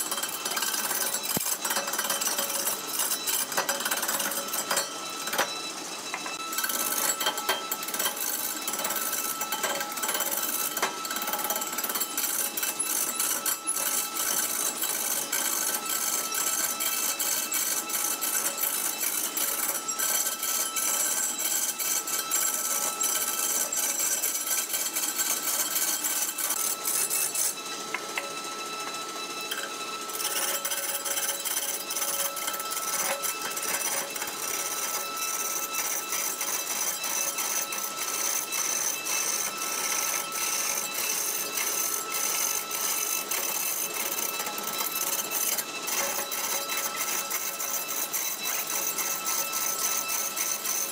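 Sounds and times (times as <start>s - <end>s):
lathe machine whine: 0.0s - 50.9s.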